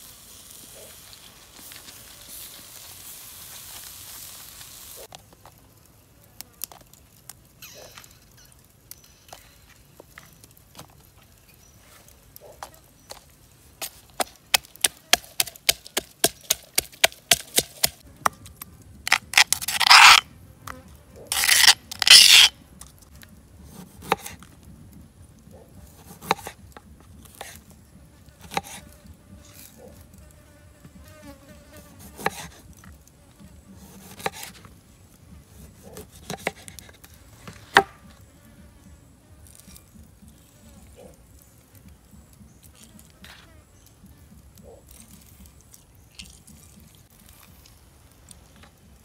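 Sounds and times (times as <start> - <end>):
pestle pounding in stone mortar: 14.2 - 18.0
paste scraped from mortar: 19.1 - 20.2, 21.3 - 22.5.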